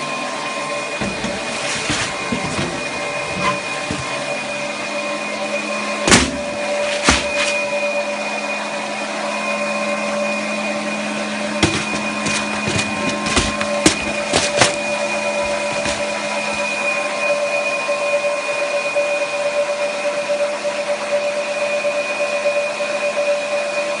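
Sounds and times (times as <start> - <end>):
sharp knocks: 1.0 - 4.4, 6.1 - 7.6, 11.6 - 16.7.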